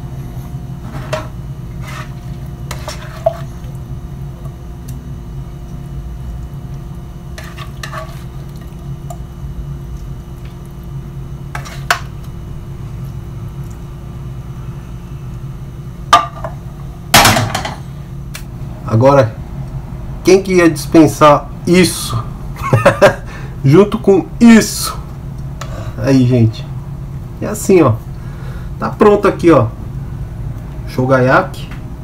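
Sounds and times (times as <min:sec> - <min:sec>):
steady low hum: 0:00.0 - 0:32.0
metal utensil scraping frying pan: 0:07.4 - 0:08.3.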